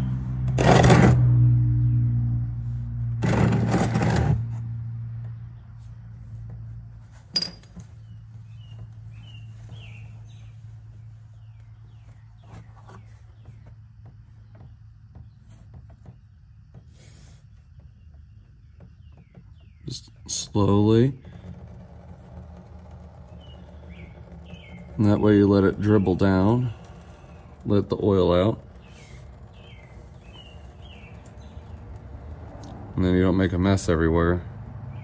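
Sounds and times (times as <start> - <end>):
wrench scraping oil filter: 3.2 - 4.7, 19.6 - 33.2.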